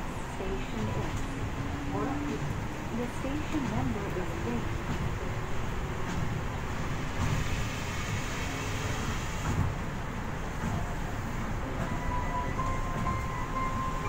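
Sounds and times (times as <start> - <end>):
monorail train rumble: 0.0 - 14.0.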